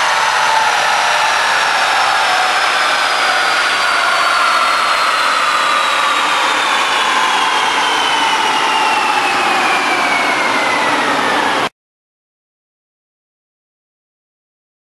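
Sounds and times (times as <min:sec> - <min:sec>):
dyno rollers whirring down: 0:00.0 - 0:11.7.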